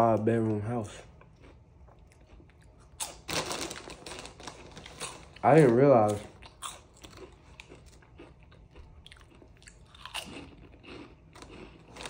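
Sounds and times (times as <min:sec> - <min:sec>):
person chewing crunchy snack: 0:01.0 - 0:12.0.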